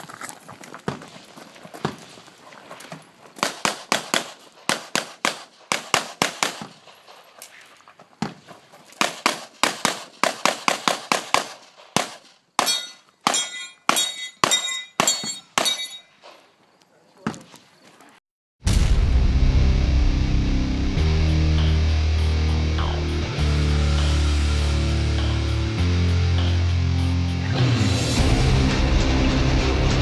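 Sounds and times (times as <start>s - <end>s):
rapid gunfire: 3.4s - 6.9s, 9.0s - 12.3s.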